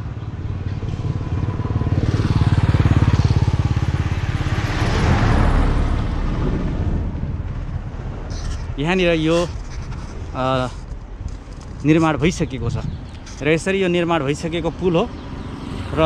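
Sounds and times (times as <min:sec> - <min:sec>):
car driving past: 0:00.9 - 0:06.7.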